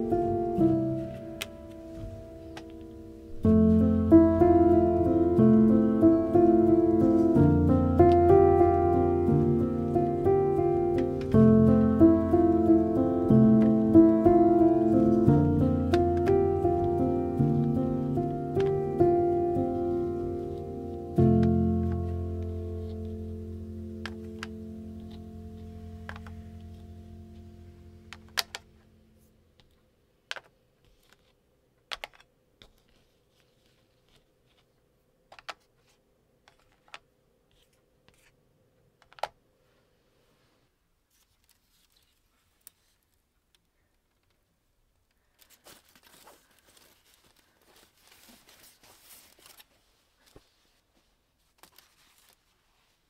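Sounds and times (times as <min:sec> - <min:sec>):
rustling and crinkling: 0:00.2 - 0:04.3, 0:06.4 - 0:38.4, 0:39.0 - 0:53.0
small objects clicking and tapping: 0:26.0 - 0:26.8.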